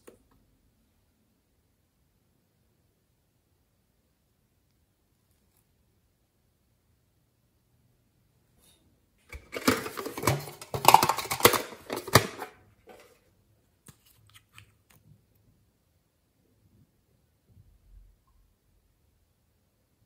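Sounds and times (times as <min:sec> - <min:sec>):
metal tin rattling: 0:09.3 - 0:13.1.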